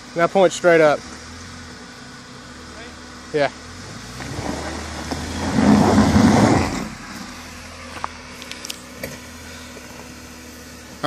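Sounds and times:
engine surging: 0.0 - 11.0
tyres spinning in loose dirt: 4.2 - 7.3.

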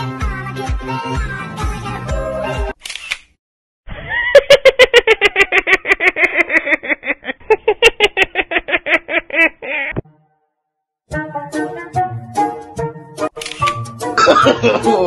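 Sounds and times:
rapid laughing: 4.0 - 10.0.

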